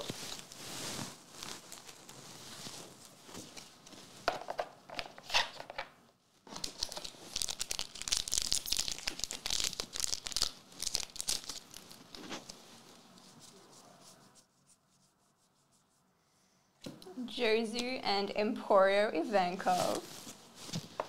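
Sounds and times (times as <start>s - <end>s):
wrapper tearing: 0.0s - 3.1s, 6.5s - 12.6s
wrapper crinkling: 0.0s - 4.2s, 6.5s - 13.4s.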